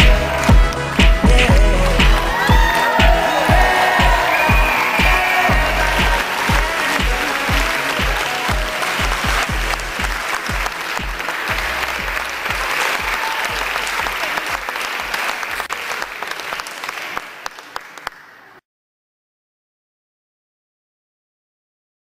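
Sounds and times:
music with a steady beat: 0.0 - 14.2
guests applauding: 0.0 - 18.6.

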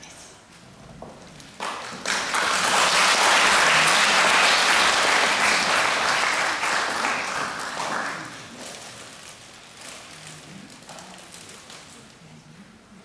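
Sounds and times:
audience applauding: 1.6 - 8.8.

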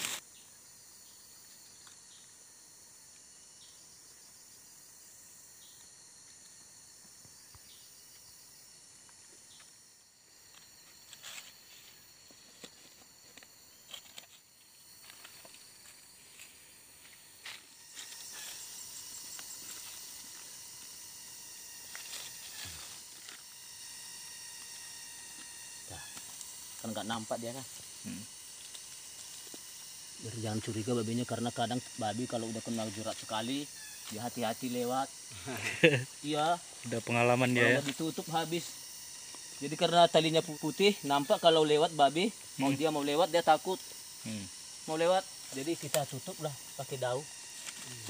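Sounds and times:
bamboo slats and leaves rustling: 0.0 - 0.2, 10.4 - 20.9, 21.7 - 23.5, 45.4 - 48.0
forest insects chorus: 0.0 - 48.0.

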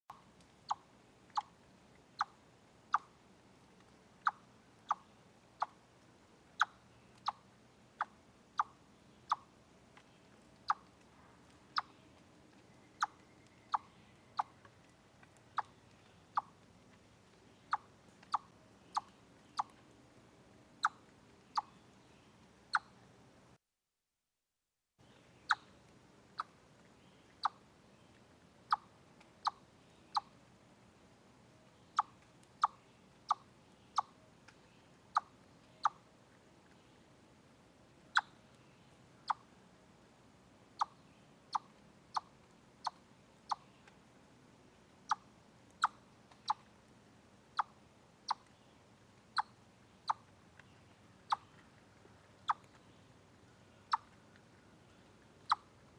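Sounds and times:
chipmunk chip call: 0.1 - 3.2, 4.2 - 5.8, 6.6 - 9.5, 10.1 - 16.6, 17.4 - 19.9, 20.8 - 21.9, 22.7 - 23.0, 25.4 - 25.8, 27.2 - 27.7, 28.6 - 30.4, 31.9 - 34.3, 35.1 - 36.1, 38.1 - 38.5, 39.2 - 39.5, 40.8 - 44.0, 45.0 - 46.7, 47.5 - 48.6, 49.3 - 55.8.

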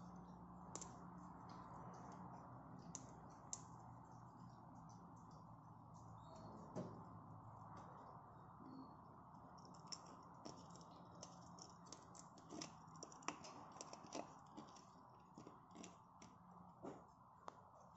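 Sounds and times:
low steady hum: 0.0 - 17.9
parrot cracking seeds: 9.6 - 16.4.

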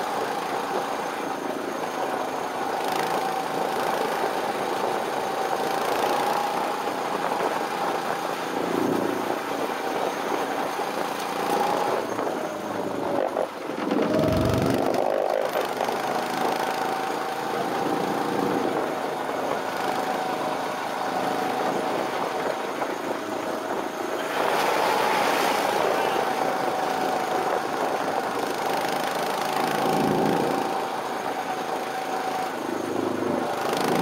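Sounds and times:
go-kart engine running: 11.0 - 22.2, 24.2 - 34.0.

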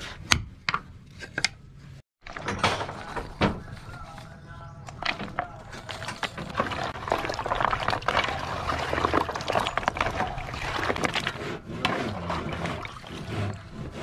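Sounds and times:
wooden discs clacking: 2.2 - 14.0
liquid sloshing and splashing: 4.9 - 14.0.

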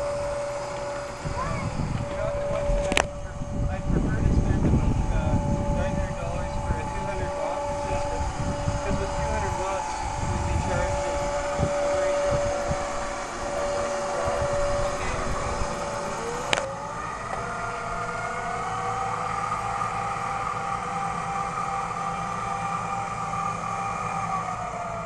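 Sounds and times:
electric motor whine: 0.0 - 25.0.

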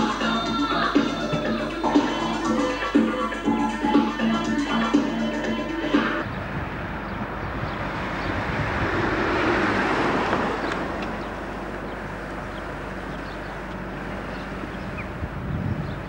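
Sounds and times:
moving car rushing noise: 5.9 - 16.0.

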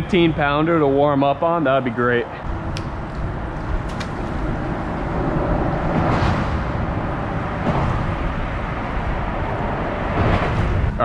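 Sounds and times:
traffic rumble on bridge overhead: 0.0 - 11.0
vehicle passing: 2.4 - 11.0.

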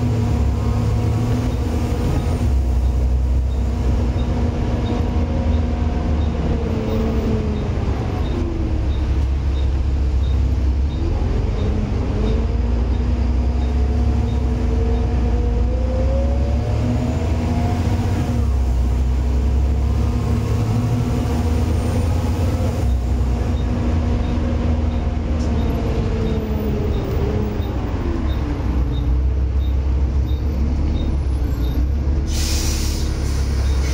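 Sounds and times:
bus diesel engine rumble: 0.0 - 33.9.

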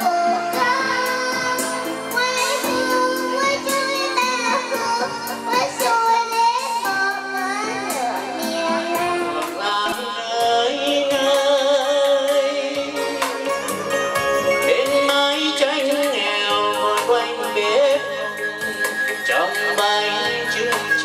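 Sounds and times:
girl singing into a microphone: 0.0 - 13.6
recorded backing music: 0.0 - 21.0
man singing into a microphone: 8.4 - 21.0.

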